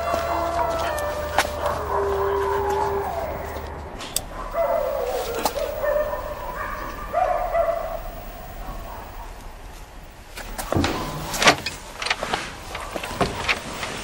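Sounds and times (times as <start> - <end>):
dog whining: 0.0 - 3.7, 4.3 - 8.9.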